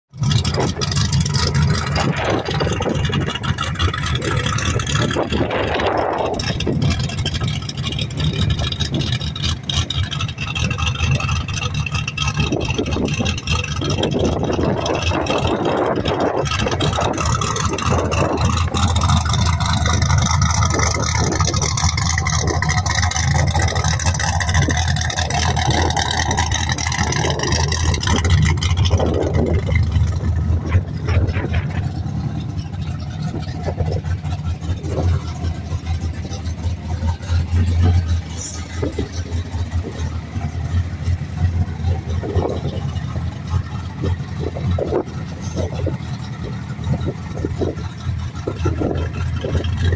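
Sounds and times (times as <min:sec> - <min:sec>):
race car engine idling: 0:00.1 - 0:49.9.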